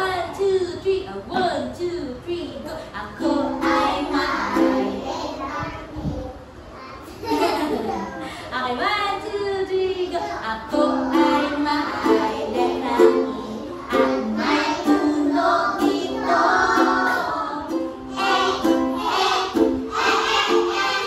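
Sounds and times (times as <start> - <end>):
woman singing: 0.0 - 5.0, 8.5 - 17.9
ukulele strumming: 3.0 - 5.4, 10.6 - 21.0.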